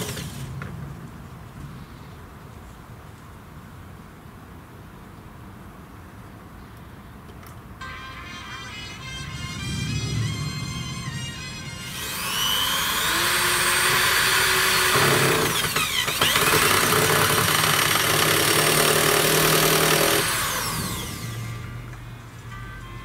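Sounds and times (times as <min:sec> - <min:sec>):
cordless drill whining: 0:07.8 - 0:22.1.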